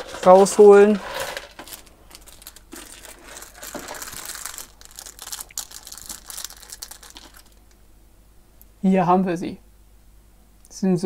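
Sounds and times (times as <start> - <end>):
plastic bag crinkling: 0.0 - 7.8.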